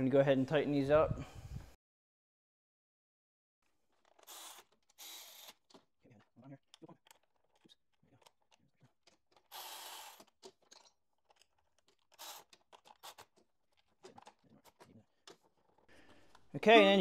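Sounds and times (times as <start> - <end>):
hands handling rubber hose clicks: 5.6 - 9.5, 10.2 - 16.6.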